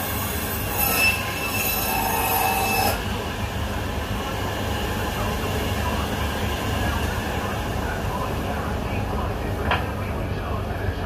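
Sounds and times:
band saw squealing whine: 0:00.0 - 0:03.5
low machine hum: 0:00.0 - 0:11.0.

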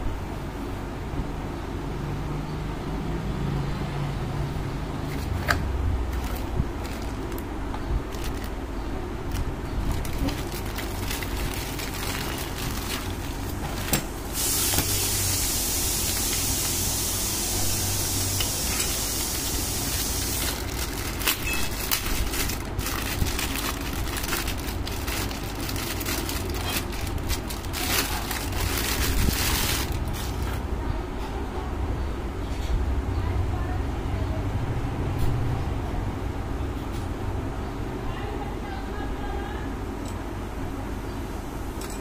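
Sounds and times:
plastic bag crinkling: 0:06.1 - 0:07.5, 0:08.1 - 0:14.0, 0:19.2 - 0:30.6
steady hiss: 0:14.2 - 0:20.7.

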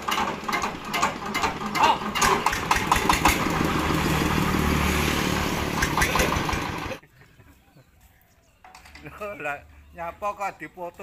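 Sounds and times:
diesel engine starting and running: 0:00.0 - 0:07.0.

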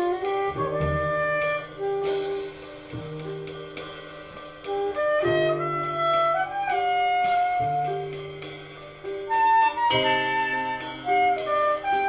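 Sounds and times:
plucked double bass: 0:00.0 - 0:02.4
soprano saxophone melody: 0:00.0 - 0:02.5, 0:04.8 - 0:08.0, 0:09.3 - 0:12.0
light cymbal strokes: 0:01.4 - 0:05.0, 0:07.2 - 0:12.0.

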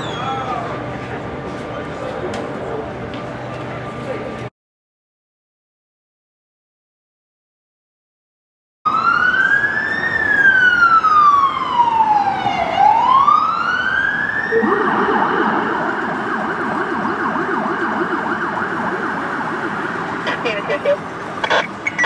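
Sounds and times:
police siren wailing and yelping: 0:08.9 - 0:22.0.

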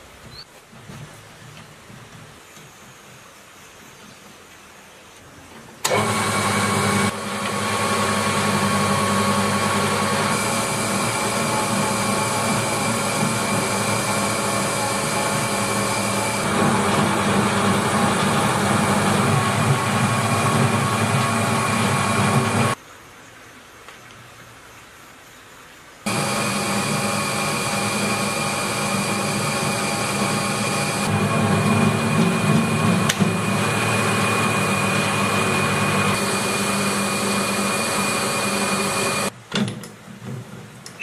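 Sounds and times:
metal lathe motor humming: 0:05.8 - 0:22.8, 0:26.1 - 0:39.3.

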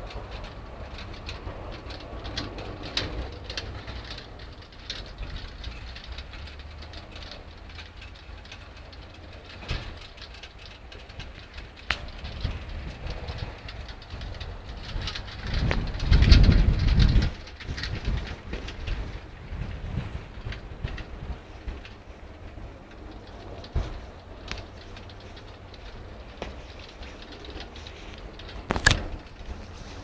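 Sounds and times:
sharp clicks: 0:22.8 - 0:29.8.

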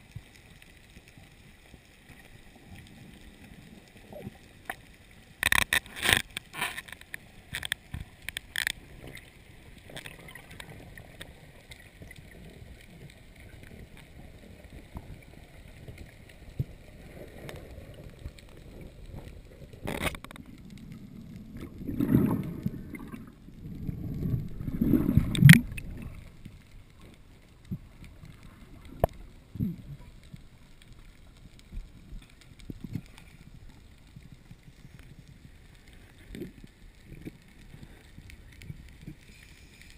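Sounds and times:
underwater gurgling rushes: 0:07.2 - 0:39.2.

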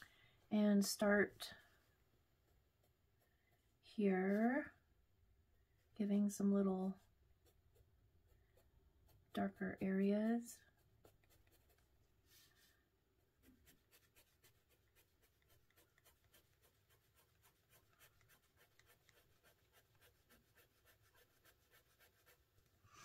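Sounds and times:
pencil scratching on paper: 0:06.8 - 0:12.7, 0:13.3 - 0:22.8.

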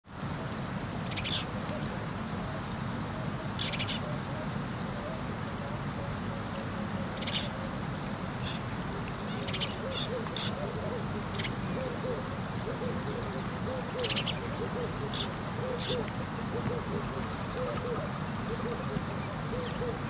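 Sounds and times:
low steady background noise: 0:00.1 - 0:20.0.

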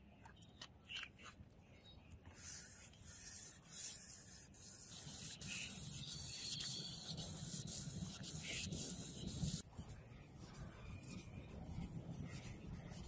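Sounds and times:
sandpaper rubbing metal blade: 0:02.6 - 0:09.6.

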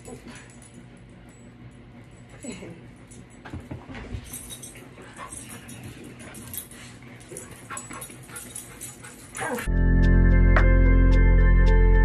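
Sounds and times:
light jingling: 0:04.2 - 0:09.7
dogs whimpering: 0:07.3 - 0:09.7.

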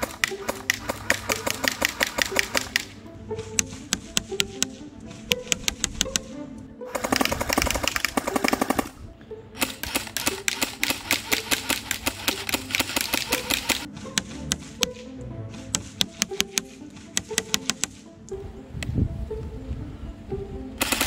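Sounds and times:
electric airsoft gun firing bursts: 0:00.0 - 0:03.0, 0:06.9 - 0:09.0, 0:09.6 - 0:13.9, 0:20.8 - 0:21.0
background music: 0:00.0 - 0:21.0.

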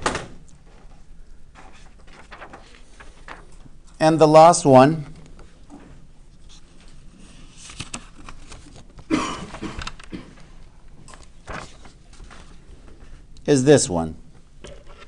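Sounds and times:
paper rustling: 0:00.6 - 0:04.0, 0:05.1 - 0:13.3.

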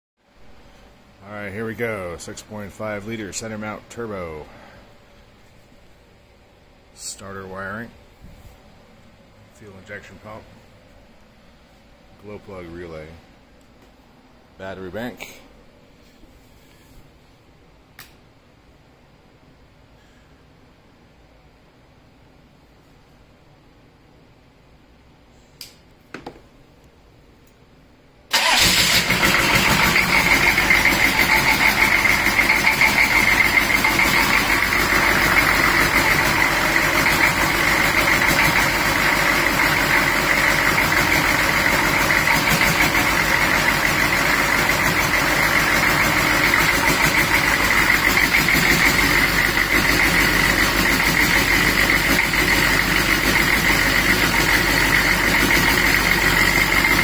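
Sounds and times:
diesel engine starting and running: 0:00.3 - 0:04.9, 0:28.3 - 0:57.0.

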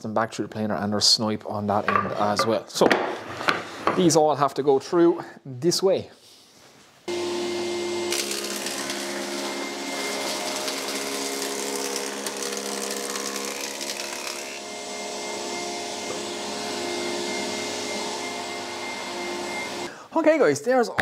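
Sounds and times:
planer machine hum: 0:07.1 - 0:19.9
hiss of wood cutting: 0:07.1 - 0:20.0.

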